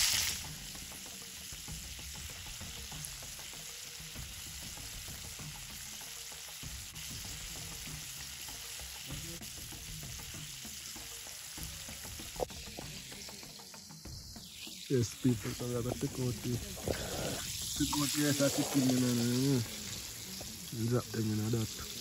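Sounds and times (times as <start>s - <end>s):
chicken deep-frying in oil: 0.0s - 22.0s
oil popping: 14.5s - 22.0s.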